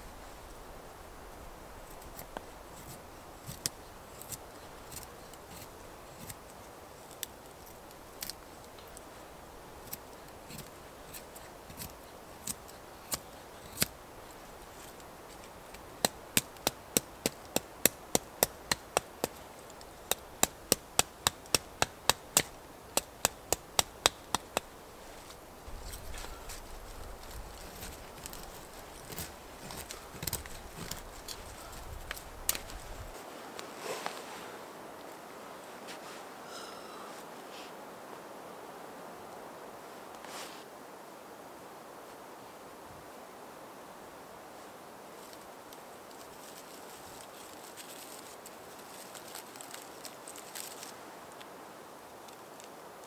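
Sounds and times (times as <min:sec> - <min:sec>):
knife carving wood: 0:01.8 - 0:09.1, 0:09.7 - 0:33.2.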